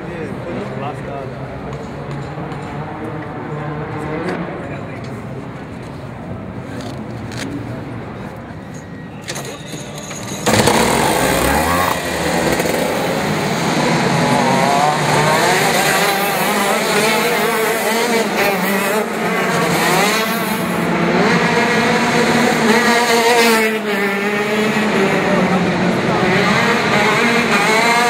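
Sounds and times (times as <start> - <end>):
kart engine revving high: 10.2 - 28.0.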